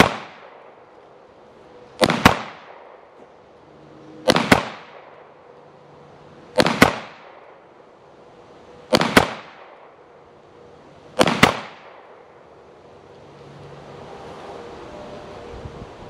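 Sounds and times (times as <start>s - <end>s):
pistol shots with echo: 0.0s - 0.8s, 2.0s - 3.2s, 4.2s - 5.3s, 6.6s - 7.6s, 8.9s - 10.0s, 11.2s - 12.2s.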